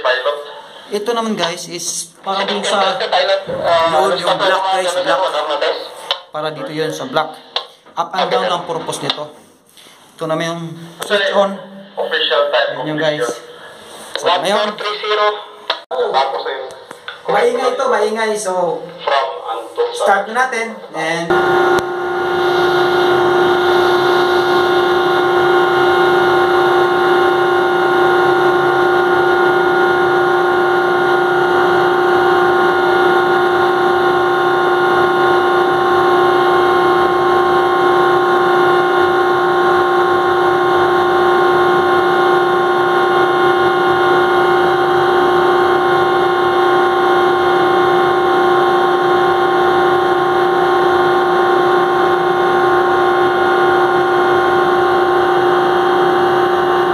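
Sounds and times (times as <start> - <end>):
deck crane steady tone: 21.3 - 56.9.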